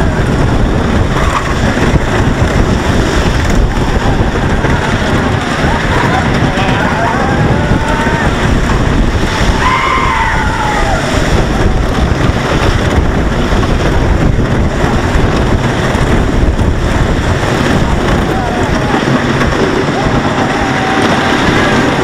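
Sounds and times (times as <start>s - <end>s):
roller coaster rumbling on wooden track: 0.0s - 22.0s
wind buffeting microphone: 0.0s - 22.0s
riders yelling: 1.1s - 12.6s, 17.3s - 22.0s.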